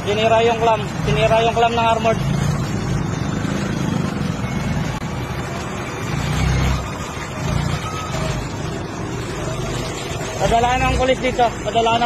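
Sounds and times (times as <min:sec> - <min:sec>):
street noise: 0:00.0 - 0:12.0.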